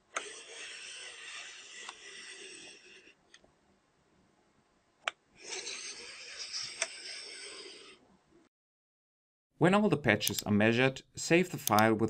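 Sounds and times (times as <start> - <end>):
device scraping along ruler: 0.2 - 3.2
device clicking: 10.2 - 10.5.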